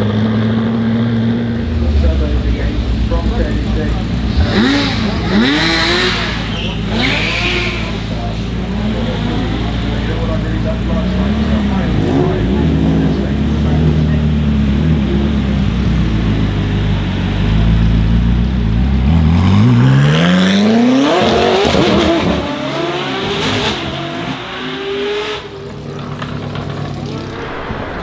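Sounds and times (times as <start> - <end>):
car engine accelerating: 0.0 - 28.0
car engine idling: 1.4 - 11.9, 25.5 - 28.0.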